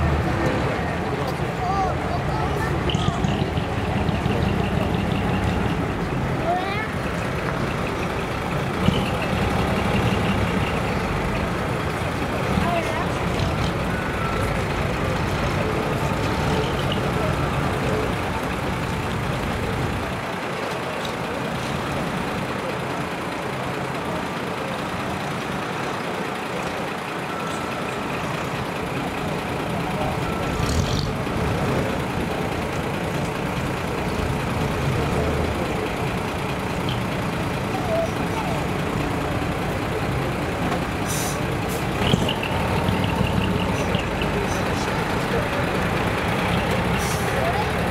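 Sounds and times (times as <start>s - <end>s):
truck diesel engine rumbling: 0.0s - 47.9s
short hiss: 41.0s - 41.9s.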